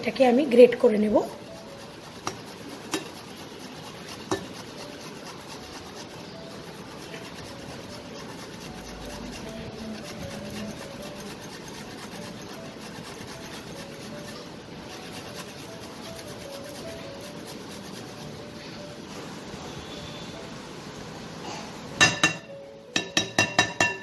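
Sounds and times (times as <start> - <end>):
ginger scraping on a grater: 0.8 - 18.7.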